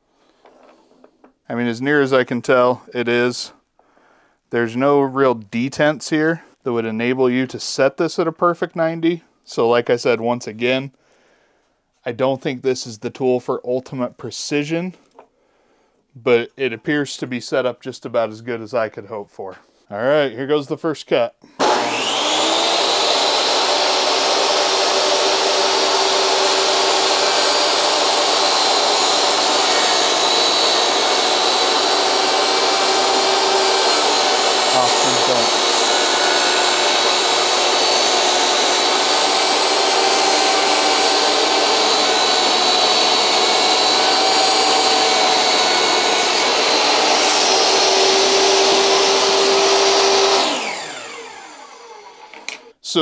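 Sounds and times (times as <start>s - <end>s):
saw ripping wooden board: 21.6s - 52.7s
table saw whining: 21.6s - 52.8s.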